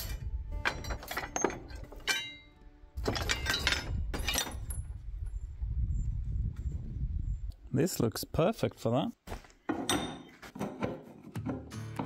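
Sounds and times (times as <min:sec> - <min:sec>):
scrap metal clinking and clanking: 0:00.0 - 0:05.0, 0:09.7 - 0:12.0.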